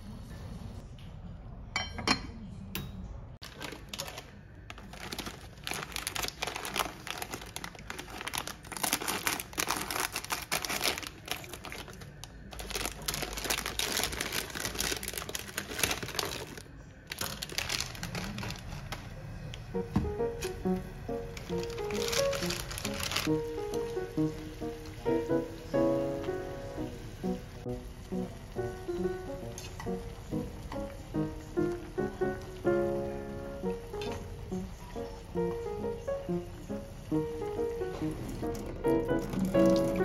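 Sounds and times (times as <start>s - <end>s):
plastic wrapper crinkling: 3.4s - 19.3s, 21.2s - 25.1s, 38.5s - 40.0s.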